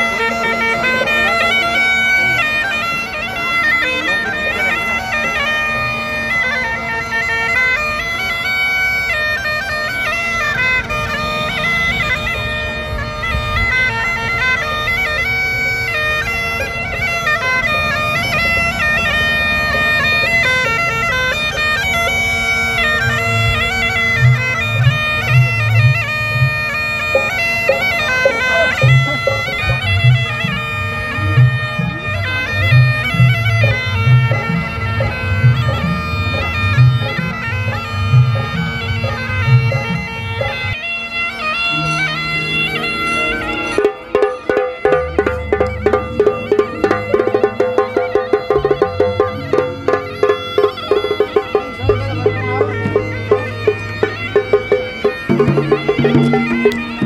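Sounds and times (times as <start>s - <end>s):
bagpipe drone and melody: 0.0s - 57.0s.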